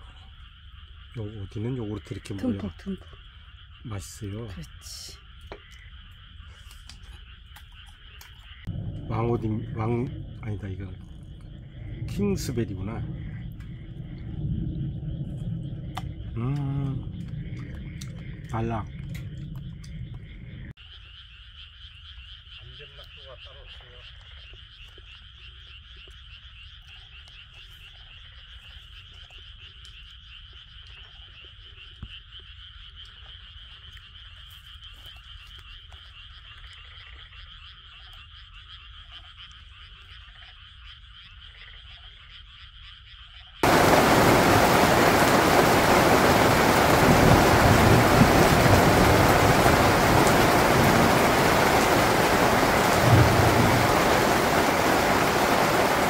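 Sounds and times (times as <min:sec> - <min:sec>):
faint chorus of frogs: 0:00.0 - 0:56.0
rain falling on a tent: 0:12.0 - 0:13.7, 0:43.6 - 0:56.0.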